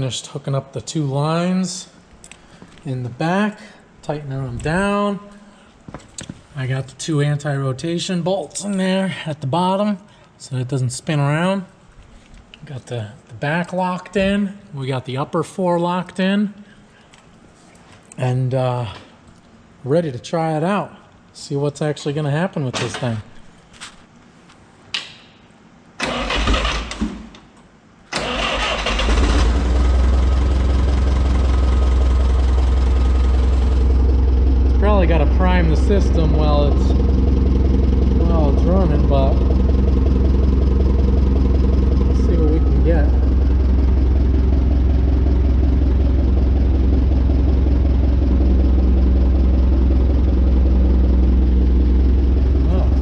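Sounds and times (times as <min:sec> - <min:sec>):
engine cranking: 0:26.0 - 0:26.9, 0:28.2 - 0:48.5
engine idling: 0:28.4 - 0:53.0
steady hum: 0:29.5 - 0:53.0.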